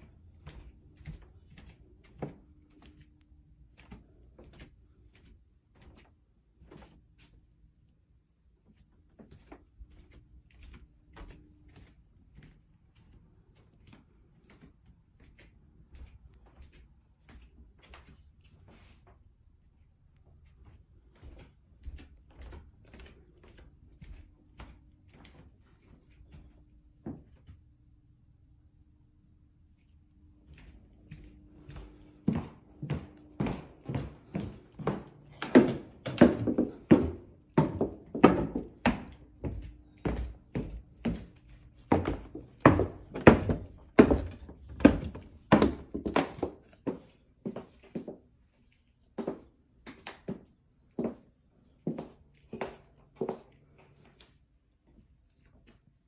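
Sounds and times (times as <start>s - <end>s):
faint footsteps on a floor: 0.0s - 28.5s, 29.3s - 56.0s
footsteps on wooden stairs: 30.6s - 48.2s.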